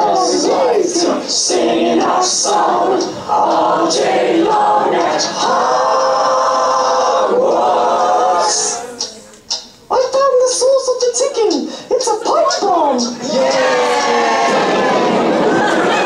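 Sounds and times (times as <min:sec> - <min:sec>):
voices chanting a capella: 0:00.0 - 0:09.3, 0:13.0 - 0:16.0.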